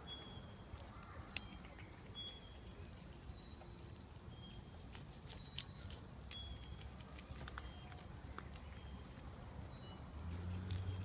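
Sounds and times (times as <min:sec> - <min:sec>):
cat chewing leaves: 0:02.8 - 0:09.4, 0:10.2 - 0:11.0.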